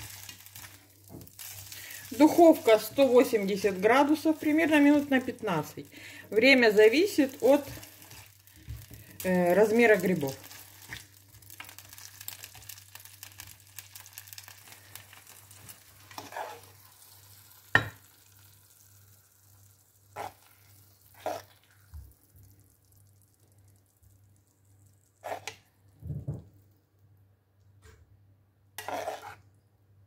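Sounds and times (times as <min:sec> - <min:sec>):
food sizzling in a pan: 0:00.0 - 0:25.7, 0:28.8 - 0:29.4
utensil scraping and knocking a pan: 0:28.8 - 0:29.4.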